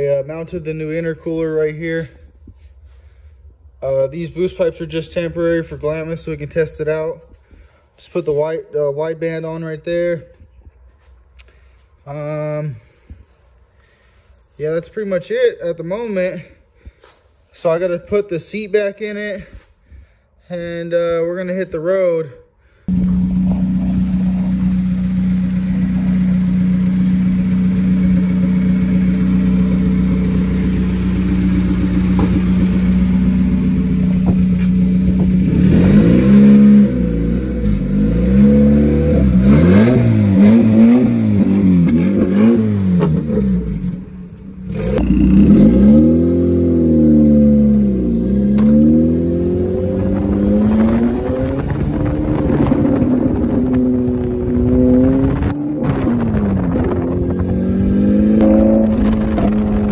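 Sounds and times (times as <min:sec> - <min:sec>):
car engine idling and revving: 0:22.9 - 0:59.9.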